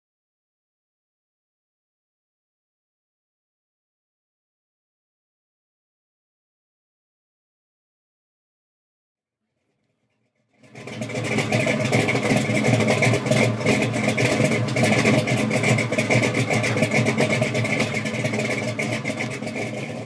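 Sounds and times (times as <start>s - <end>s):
engine running with pulsing exhaust: 9.5s - 20.0s.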